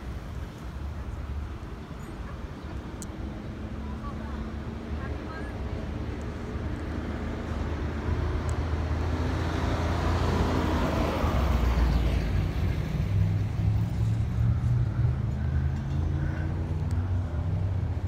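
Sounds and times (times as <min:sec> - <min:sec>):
car driving past: 0:07.4 - 0:17.9.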